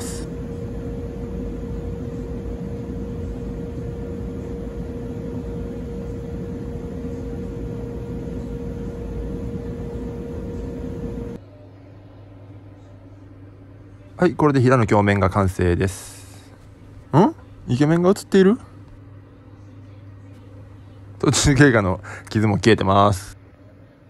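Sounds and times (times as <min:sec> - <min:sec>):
polishing wheel humming: 0:00.0 - 0:11.4.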